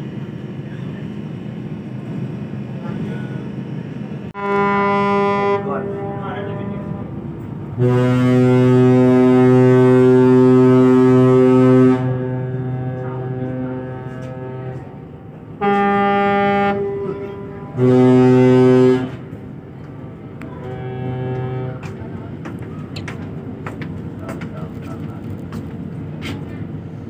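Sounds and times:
higher-pitched ship horn blast: 0:04.4 - 0:19.4, 0:20.4 - 0:22.0
deep ship horn blast: 0:04.4 - 0:22.4.

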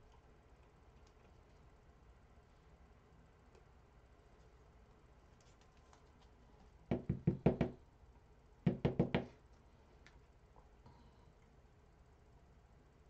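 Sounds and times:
knocks: 0:06.9 - 0:07.8, 0:08.7 - 0:09.3.

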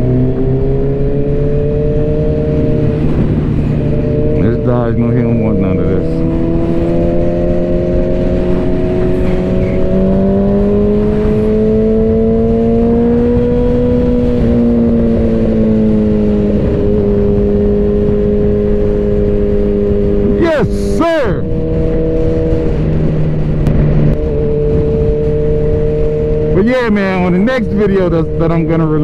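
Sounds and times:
motorcycle engine cruising: 0:00.0 - 0:29.0
wind rush: 0:00.0 - 0:29.0.

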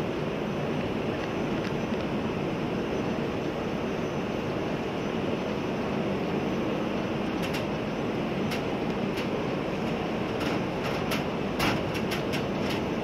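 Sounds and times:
distant jet aircraft roar: 0:00.0 - 0:13.0.

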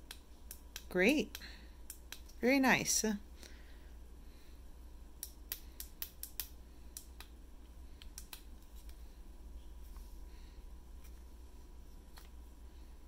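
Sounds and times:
sharp clicks and taps on light bar: 0:00.0 - 0:02.4, 0:05.2 - 0:07.4, 0:08.0 - 0:08.5.

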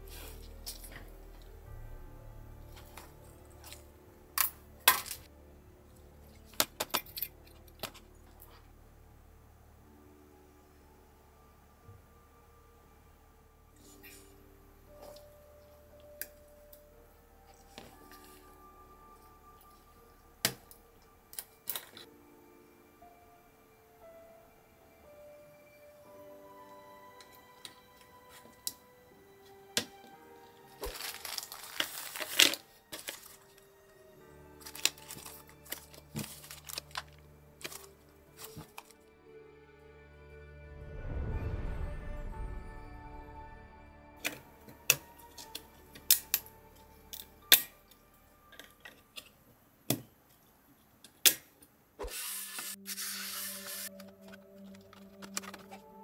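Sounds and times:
soft background music: 0:00.0 - 0:56.0
plastic bags crinkling: 0:30.7 - 0:33.7, 0:34.6 - 0:39.0, 0:53.5 - 0:56.0
loud steady hiss: 0:52.0 - 0:53.9.

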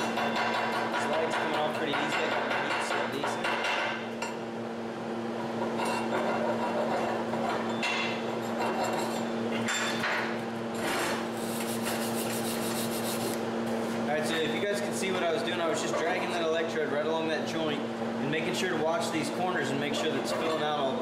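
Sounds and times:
steady electrical hum: 0:00.0 - 0:21.0
wire brush scrubbing metal: 0:11.3 - 0:13.4.

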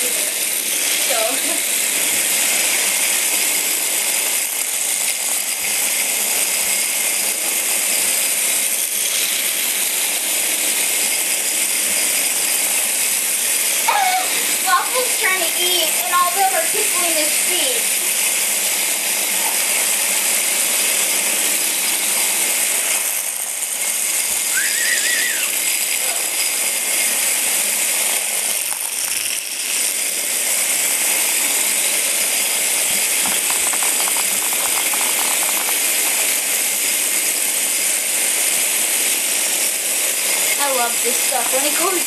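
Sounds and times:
short high squeak: 0:24.5 - 0:25.7
vibrating toys rattling on floor: 0:31.4 - 0:37.6
quick ticks: 0:33.2 - 0:36.4.

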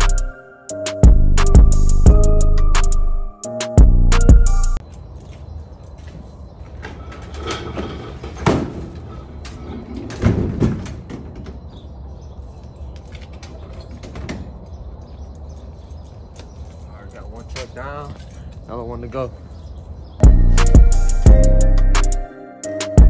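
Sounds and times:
trailer door banging shut: 0:06.7 - 0:12.0, 0:13.2 - 0:14.7.

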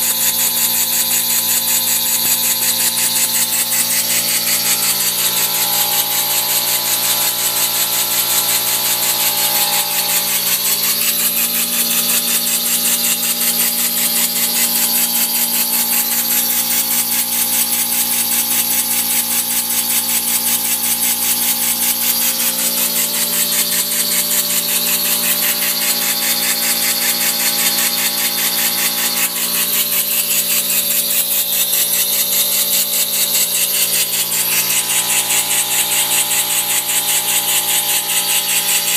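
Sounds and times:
steady engine whine: 0:02.3 - 0:11.7.

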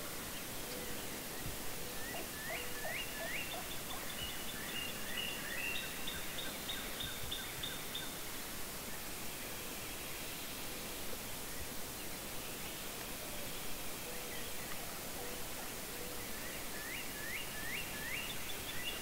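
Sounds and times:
outdoor hiss: 0:00.0 - 0:19.0
birds chirping: 0:00.4 - 0:07.2.

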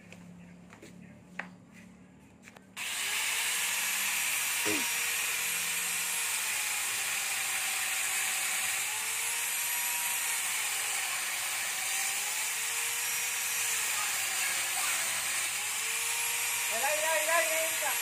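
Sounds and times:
electric chainsaw cutting branch: 0:02.8 - 0:18.0.

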